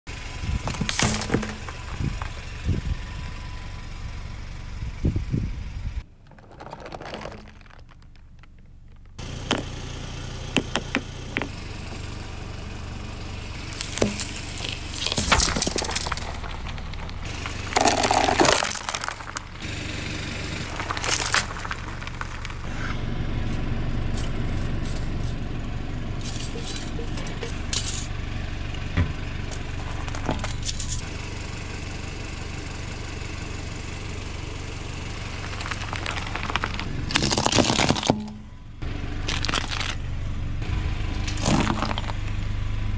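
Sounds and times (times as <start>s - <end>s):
car engine idling: 0.1s - 37.3s, 38.0s - 42.9s
tyre crushing objects: 0.6s - 2.4s, 6.2s - 9.7s, 13.7s - 19.6s, 20.6s - 22.7s, 35.4s - 38.4s, 41.3s - 42.2s.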